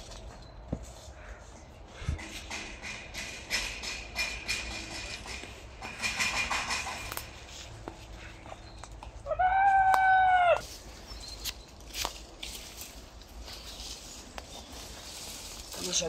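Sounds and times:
rustles and clicks: 10.6s - 16.0s.

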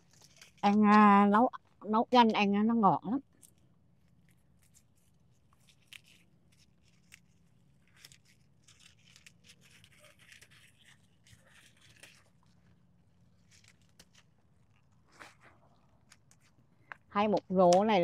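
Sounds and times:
leaves rustling: 0.0s - 0.8s, 4.2s - 16.5s.

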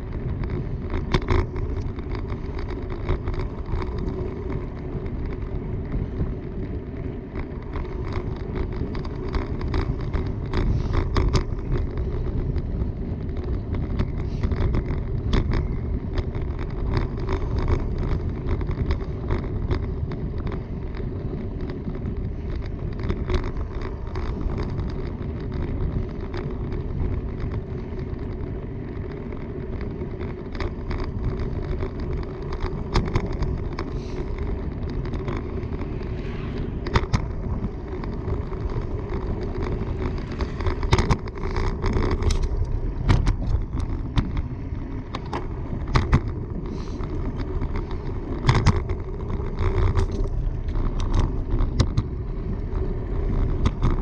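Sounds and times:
bicycle clicks and rattles: 0.0s - 54.0s
bicycle tyres rolling on pavement: 0.0s - 54.0s.

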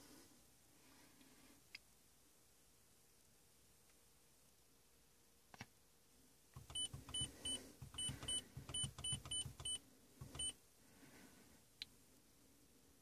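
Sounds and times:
short high beeps: 6.7s - 10.6s.

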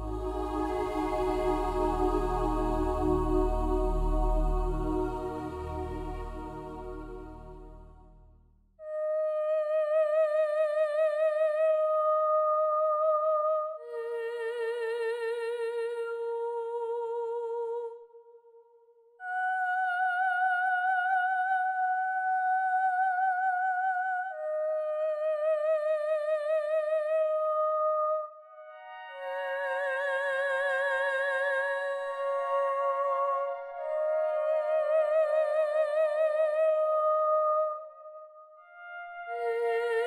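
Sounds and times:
slow melody with wavering vibrato: 0.0s - 9.7s, 28.2s - 40.0s.

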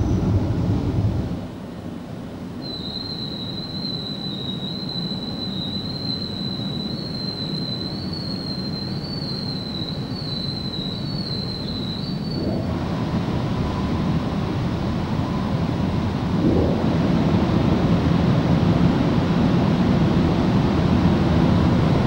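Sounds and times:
low rumble of water and machinery: 0.0s - 22.0s
car wash machine whine: 12.2s - 20.5s
loud rushing sound: 16.1s - 19.0s.

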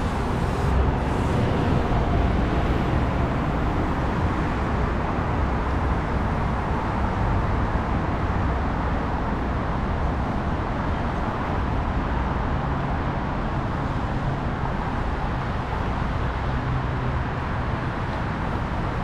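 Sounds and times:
road traffic noise: 0.0s - 19.0s.

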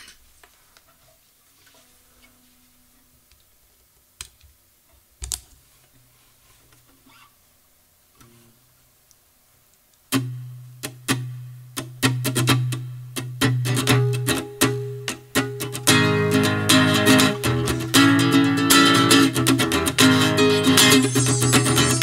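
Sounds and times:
guitar jam: 10.1s - 22.0s.

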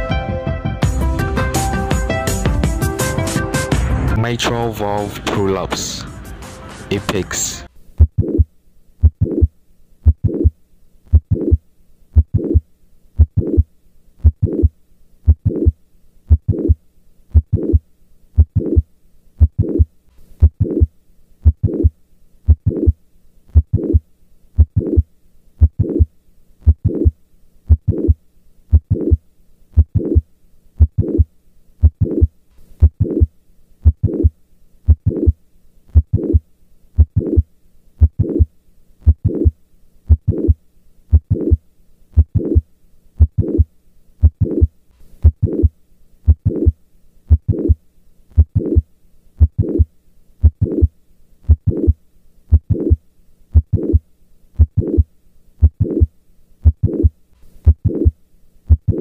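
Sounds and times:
heart murmur: 8.0s - 11.6s, 12.2s - 12.6s, 13.2s - 14.7s, 15.3s - 17.8s, 18.4s - 18.8s, 19.4s - 21.9s, 22.5s - 24.0s, 24.6s - 29.2s, 29.8s - 30.2s, 30.8s - 34.3s, 34.9s - 36.4s, 37.0s - 41.6s, 42.2s - 45.7s, 46.3s - 47.8s, 48.4s - 48.8s, 49.4s - 50.9s, 51.5s - 54.0s, 54.6s - 59.0s
heartbeat through stethoscope: 8.0s - 12.6s, 13.2s - 14.7s, 15.3s - 17.8s, 18.4s - 18.8s, 19.4s - 21.9s, 22.5s - 24.0s, 24.6s - 29.2s, 29.8s - 30.2s, 30.8s - 34.3s, 34.9s - 36.4s, 37.0s - 41.6s, 42.2s - 45.7s, 46.3s - 47.8s, 48.4s - 48.8s, 49.4s - 50.9s, 51.5s - 54.0s, 54.6s - 59.0s.

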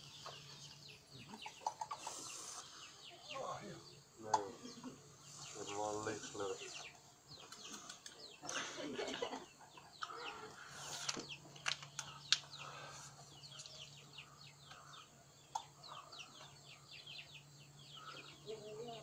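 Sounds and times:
birds chirping: 0.0s - 19.0s
faint low hum: 0.0s - 19.0s
chicken clucking: 0.2s - 3.6s.

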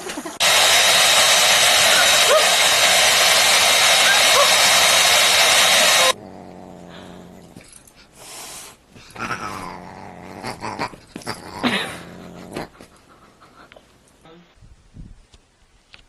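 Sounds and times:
hair dryer blowing: 0.0s - 6.2s
dog growling: 6.0s - 7.8s, 9.0s - 13.3s.

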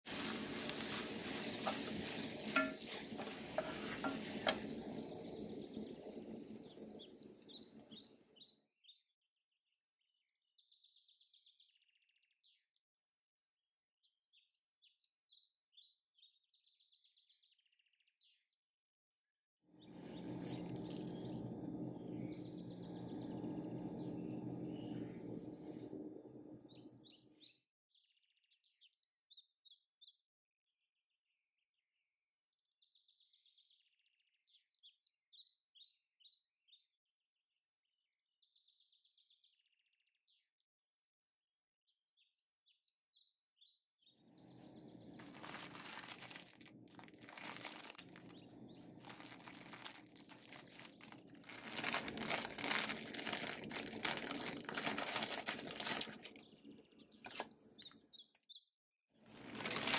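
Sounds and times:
water boiling in pot: 0.0s - 8.5s, 19.9s - 27.1s, 44.5s - 57.5s, 59.3s - 59.9s
plastic packet crinkling: 0.1s - 4.8s, 45.0s - 56.6s, 57.2s - 57.5s, 59.3s - 59.9s
small birds chirping: 0.1s - 9.0s, 19.8s - 27.6s, 42.0s - 58.7s, 59.3s - 59.9s.

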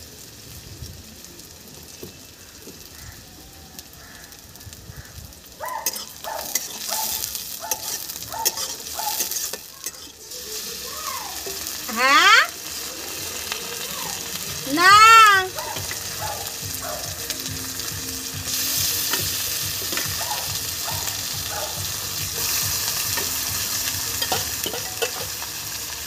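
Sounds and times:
onions sizzling in hot oil: 0.0s - 26.0s
metal spatula scraping a pan: 5.8s - 11.8s, 22.2s - 25.5s.

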